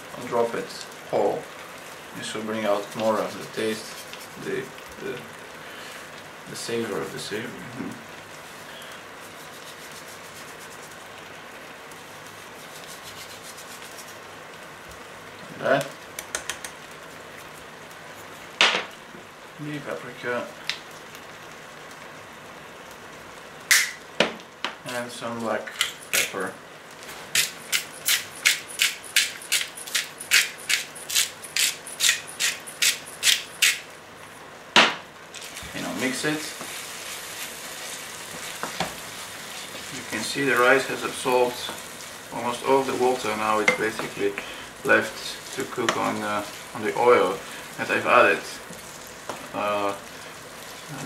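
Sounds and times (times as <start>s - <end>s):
rice sizzling in a frying pan: 0.0s - 51.0s
pepper mill grinding: 2.6s - 4.7s, 12.6s - 14.1s, 25.7s - 26.4s, 27.3s - 33.9s, 35.3s - 49.8s.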